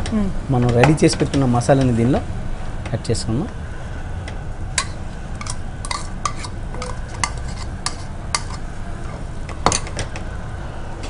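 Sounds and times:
spoon clinking and scraping pot: 4.8s - 8.7s.

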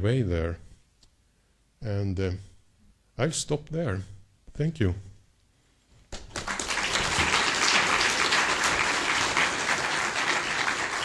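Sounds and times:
audience applauding: 6.2s - 11.0s.

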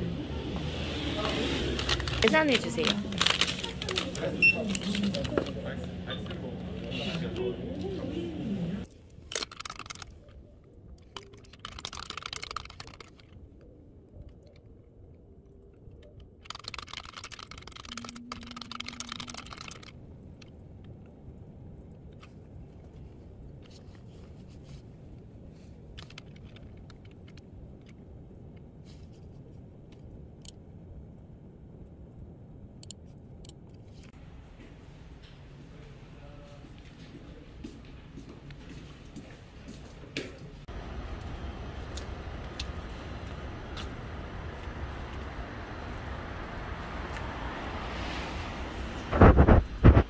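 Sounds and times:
typing on computer keyboard: 9.4s - 10.1s, 11.1s - 13.3s, 16.4s - 19.9s.

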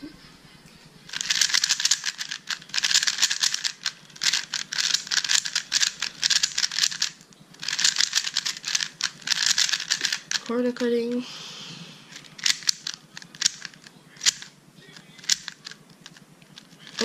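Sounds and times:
plastic puzzle cube clicking: 1.1s - 10.5s, 12.1s - 17.0s.

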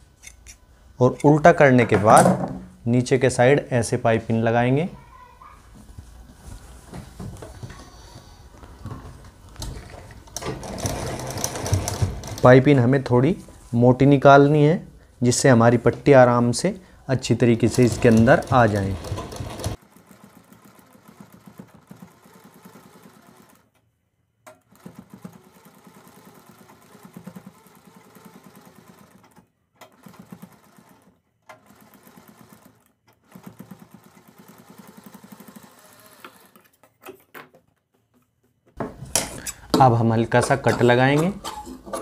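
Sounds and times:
sewing machine stitching: 9.8s - 12.8s, 17.6s - 23.7s, 24.6s - 36.7s.

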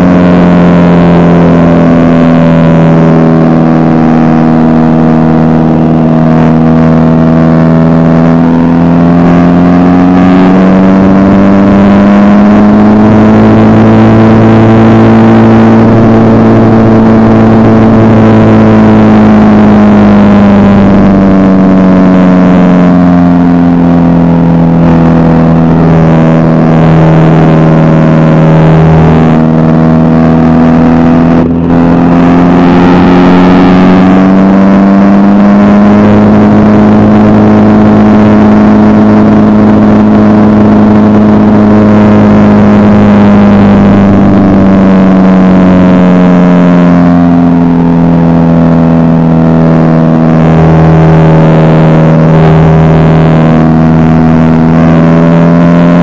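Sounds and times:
propeller plane engine: 0.0s - 56.0s.

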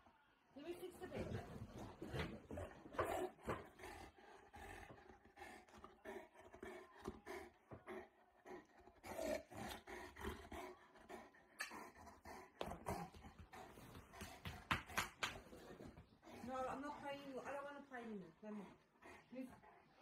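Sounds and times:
dog play-growling: 1.2s - 14.4s.

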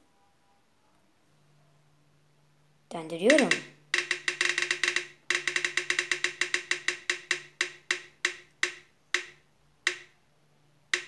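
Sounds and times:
phone app wheel ticking: 3.2s - 10.2s.

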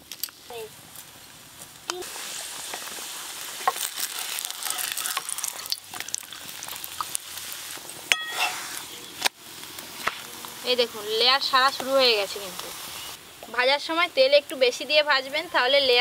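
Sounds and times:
flatbread sizzling in oil: 0.0s - 16.0s.

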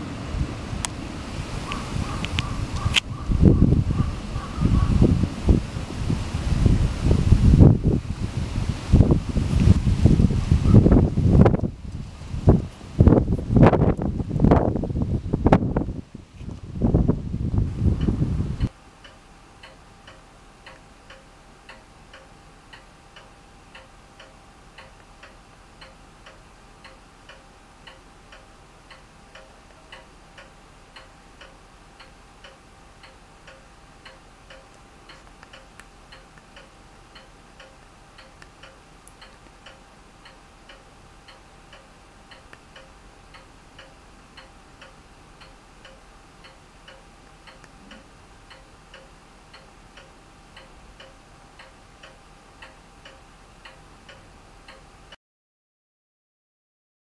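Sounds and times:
wind noise on microphone: 0.0s - 18.7s
clock ticking: 18.0s - 55.2s.

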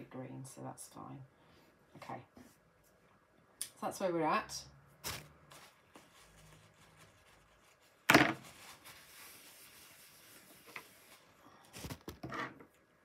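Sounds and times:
tissue swish: 5.0s - 11.4s
tissue rustling: 5.0s - 12.1s.

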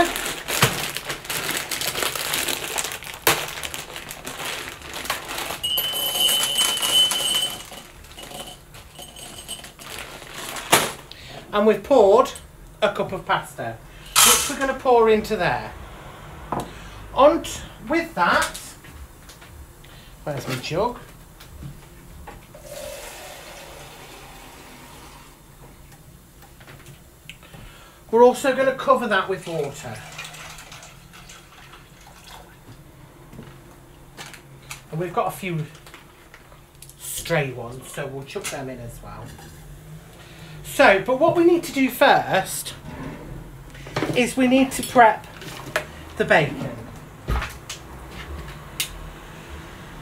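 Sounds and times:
dry pasta rattling into cup: 0.0s - 11.1s, 29.6s - 32.4s
plastic bag crinkling: 0.0s - 11.2s, 29.4s - 32.4s, 34.2s - 36.9s
thin high tone: 5.6s - 9.5s
tap water running into plastic jug: 29.4s - 32.6s.

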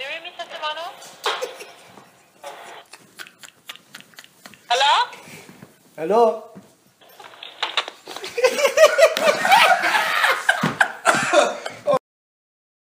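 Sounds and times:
hearty laughter: 2.8s - 4.7s, 8.1s - 12.0s.

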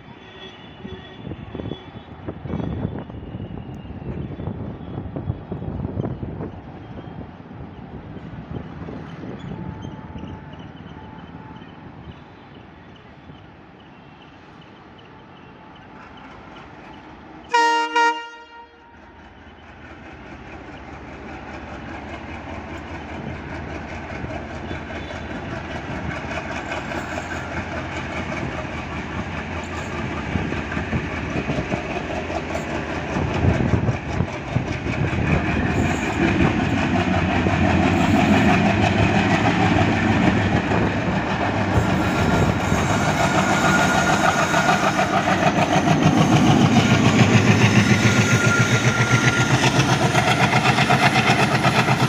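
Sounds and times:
locomotive horn blast: 17.5s - 19.0s
diesel locomotive engine throttling up: 19.2s - 52.0s.

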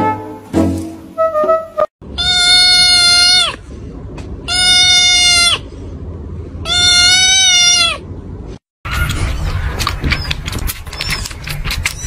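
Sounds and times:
kitten wailing: 2.2s - 3.6s, 4.5s - 5.6s, 6.6s - 8.0s.

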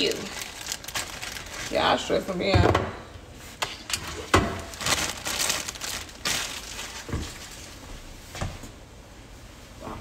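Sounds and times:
packaging crinkling and rustling: 0.0s - 2.4s, 3.8s - 8.0s.

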